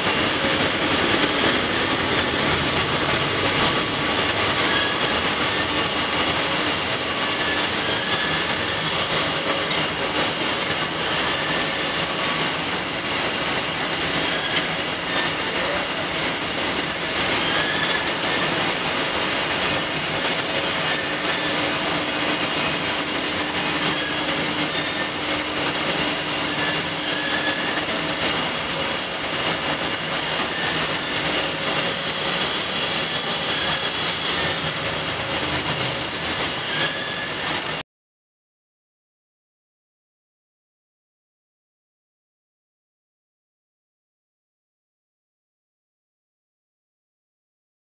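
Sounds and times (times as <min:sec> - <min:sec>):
high-pitched metallic whine: 0:00.0 - 0:37.8
lathe cutting steel: 0:00.0 - 0:37.8.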